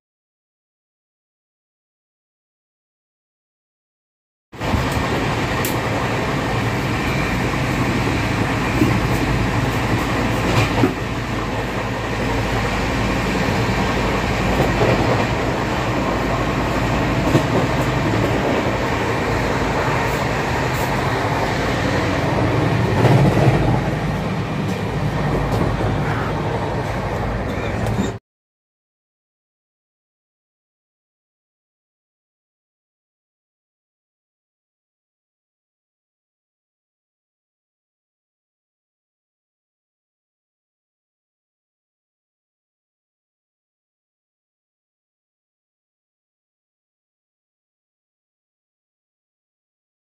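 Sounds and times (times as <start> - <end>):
train coach rumble and hum: 4.6 - 28.2.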